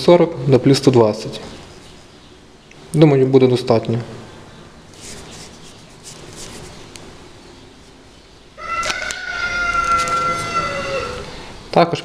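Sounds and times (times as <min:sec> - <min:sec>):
faint handling sounds: 0:04.9 - 0:07.1
cat meowing: 0:08.6 - 0:11.4.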